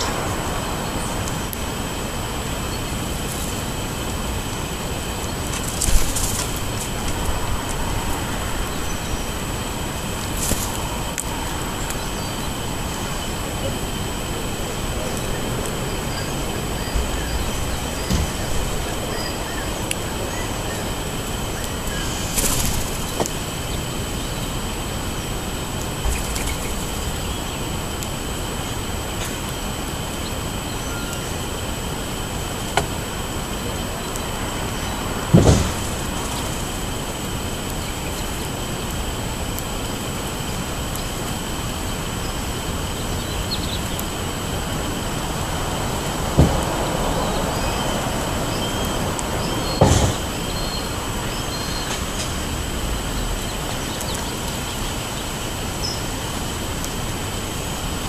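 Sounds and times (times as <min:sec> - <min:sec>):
steady wind: 0:00.0 - 0:58.0
bird wings fluttering: 0:05.1 - 0:08.5, 0:10.1 - 0:12.1, 0:21.7 - 0:23.3, 0:26.0 - 0:27.0
faint bird chirps: 0:30.2 - 0:31.4.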